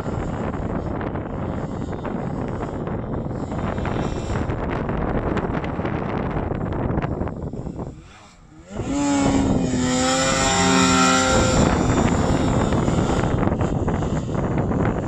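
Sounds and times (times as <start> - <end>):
snowmobile engine revving: 0.0 - 15.0
wind buffeting microphone: 0.0 - 15.0.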